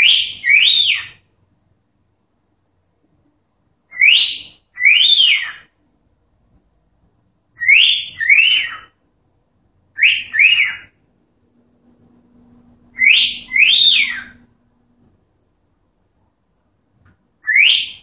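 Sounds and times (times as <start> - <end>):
cockatiel whistling: 0.0 - 1.2, 3.9 - 5.7, 7.6 - 8.9, 10.0 - 11.0, 12.9 - 14.5, 17.4 - 18.0.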